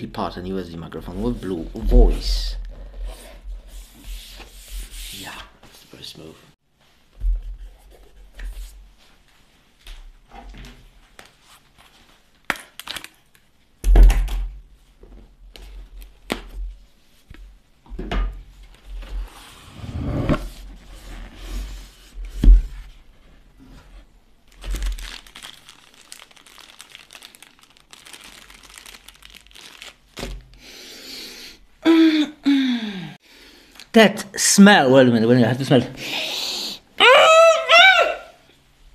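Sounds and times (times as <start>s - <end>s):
cardboard and paper rustling: 24.5s - 30.5s.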